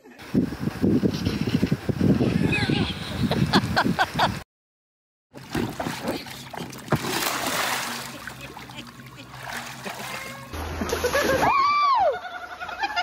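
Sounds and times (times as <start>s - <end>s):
person splashing into pool: 5.4s - 11.8s.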